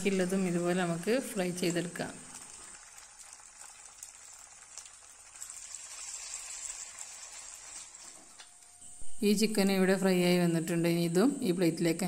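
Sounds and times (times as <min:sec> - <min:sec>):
chicken sizzling in hot oil: 0:00.0 - 0:08.8.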